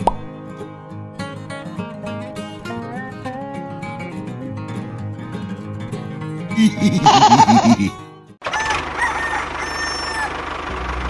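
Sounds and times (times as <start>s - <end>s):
acoustic guitar picking melody: 0.0s - 8.4s.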